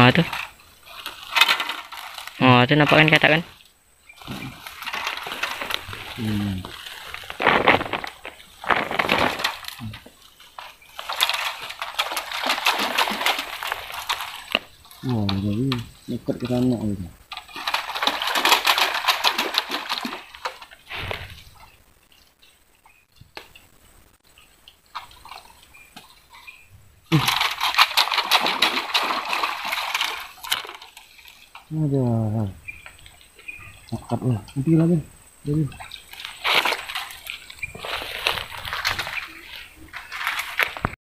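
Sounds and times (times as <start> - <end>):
dry grass and twigs rustling: 0.0 - 41.0
fish splashing at water surface: 4.2 - 15.5, 17.3 - 21.7, 27.1 - 31.7, 35.8 - 41.0.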